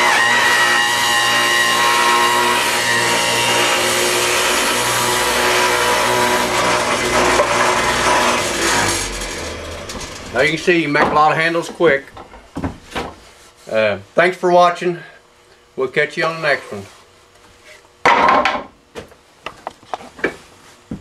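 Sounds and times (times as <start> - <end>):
table saw cutting wood: 0.0 - 12.0.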